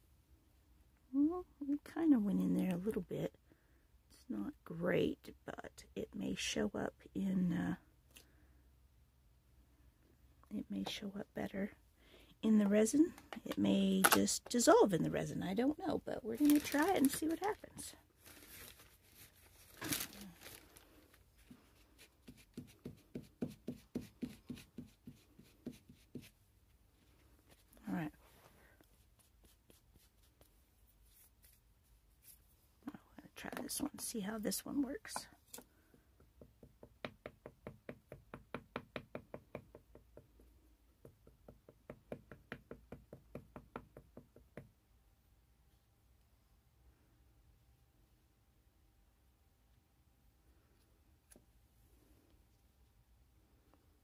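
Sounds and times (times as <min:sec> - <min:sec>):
handling rustle: 0:16.3 - 0:22.1
rubber stamp tapping on ink pad: 0:36.2 - 0:44.7.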